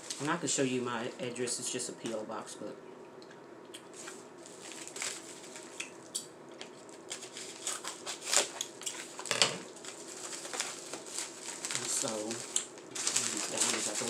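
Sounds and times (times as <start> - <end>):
plastic rustling: 0.0 - 1.4, 3.9 - 5.9, 6.6 - 14.0.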